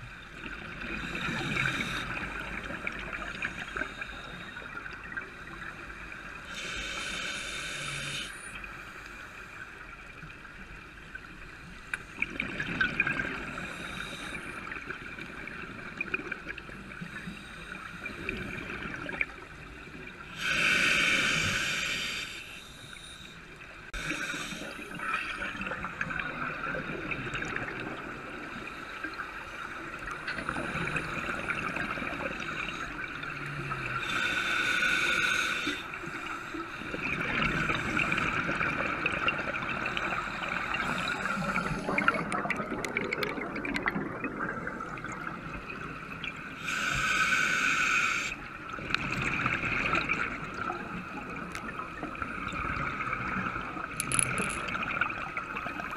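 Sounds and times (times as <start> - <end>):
underwater air bubbles gurgling: 0.0 - 8.8, 9.6 - 55.9
hissing regulator breaths: 6.5 - 9.4, 20.3 - 25.4, 34.0 - 36.9, 46.6 - 48.4.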